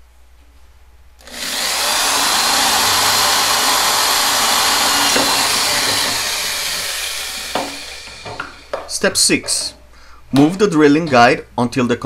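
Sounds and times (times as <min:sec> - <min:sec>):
electric drill boring plastic pipe: 0:01.2 - 0:08.9.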